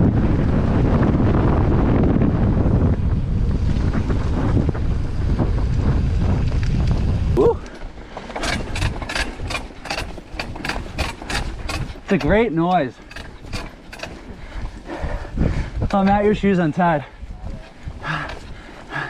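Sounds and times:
wind rumbling on microphone: 0.0s - 19.0s
bicycle freehub ticking: 4.7s - 16.5s.

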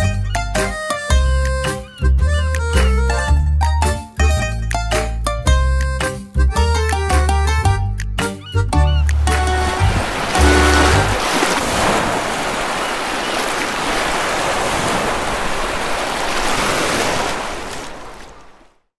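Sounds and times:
background music: 0.0s - 11.2s
sea surf washing over rocks: 9.2s - 18.8s.

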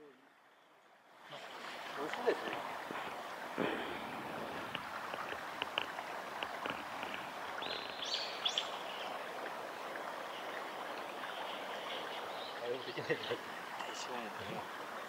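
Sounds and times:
stream running over gravel: 1.0s - 15.0s.

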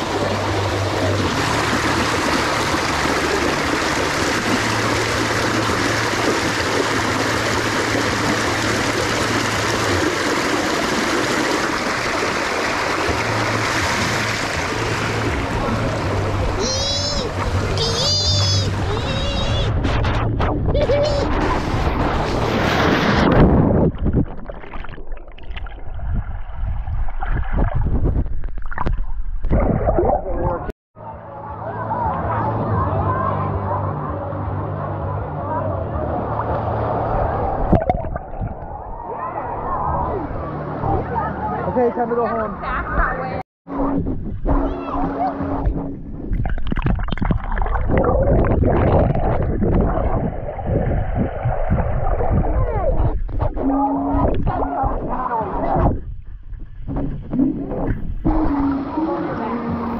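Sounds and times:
pool water splashing: 0.0s - 27.9s
muffled underwater bubbling: 0.0s - 30.7s, 37.3s - 40.2s, 43.8s - 59.9s
muffled underwater gurgling: 27.3s - 30.7s, 36.1s - 40.3s, 43.7s - 59.9s.

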